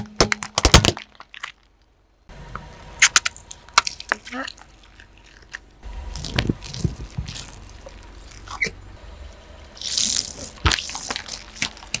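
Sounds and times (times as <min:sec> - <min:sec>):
plastic bowl crackling and cracking: 0:00.0 - 0:01.9, 0:09.8 - 0:12.0
tyre squashing water beads: 0:09.8 - 0:12.0.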